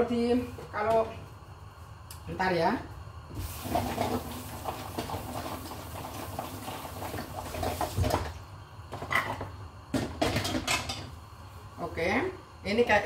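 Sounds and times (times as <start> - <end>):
dishes and pots clattering: 8.9 - 11.1.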